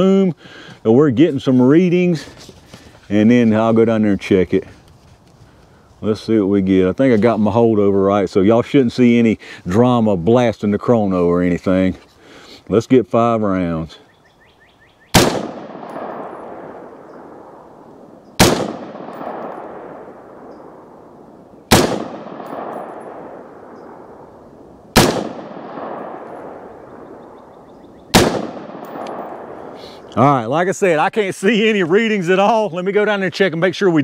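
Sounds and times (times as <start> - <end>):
rifle shots: 15.1 - 17.8, 18.4 - 29.8.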